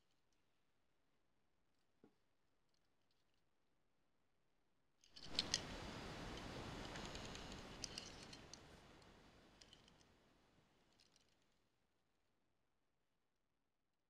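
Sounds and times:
rustling hiss with light ticks: 0:05.2 - 0:11.6.

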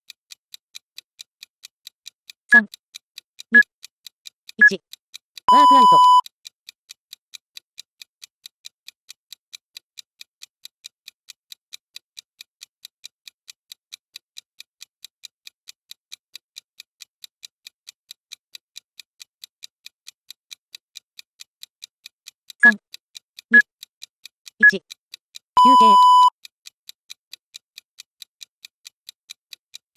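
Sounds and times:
timer ticking: 0:00.0 - 0:29.9
recorded voice counting down: 0:02.5 - 0:02.8, 0:04.6 - 0:04.8, 0:05.5 - 0:06.2, 0:24.6 - 0:24.9, 0:25.6 - 0:26.3.

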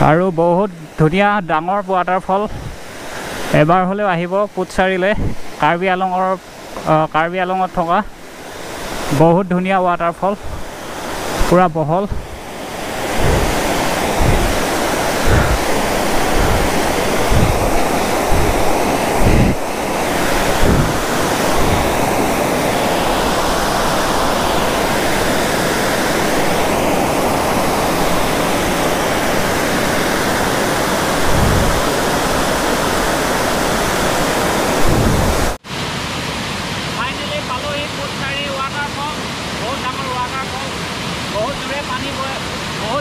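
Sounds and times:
waterfall rushing: 0:00.0 - 0:43.0
wind buffeting microphone: 0:02.4 - 0:03.4, 0:05.1 - 0:05.6, 0:10.2 - 0:35.6.

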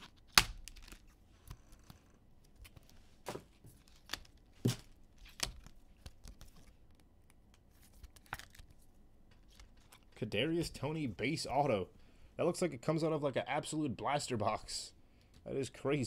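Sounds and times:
cards and packaging clicking: 0:00.0 - 0:03.0, 0:03.8 - 0:08.8.

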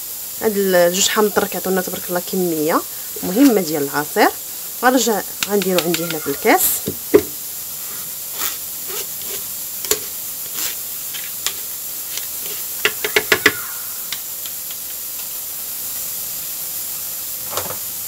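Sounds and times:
steady hiss: 0:00.0 - 0:18.0
kitchen utensils clicking and knocking: 0:05.4 - 0:07.4, 0:08.4 - 0:15.0.

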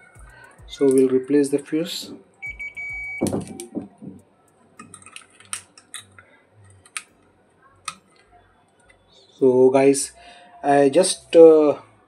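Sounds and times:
glass fuse clicking into clips: 0:00.7 - 0:01.1, 0:04.5 - 0:07.1
electronic beep: 0:02.4 - 0:03.9.

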